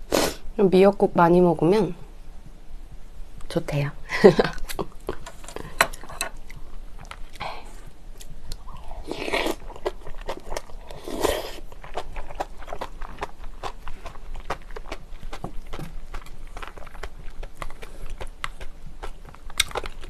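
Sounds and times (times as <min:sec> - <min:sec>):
chewing and mouth clicks: 0:08.2 - 0:20.0.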